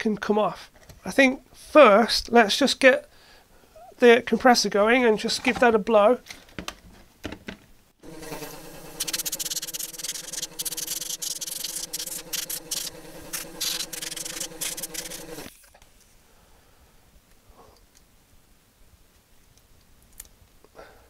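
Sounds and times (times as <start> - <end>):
air compressor humming: 8.0 - 15.6
compressed air hissing bursts: 8.0 - 15.6.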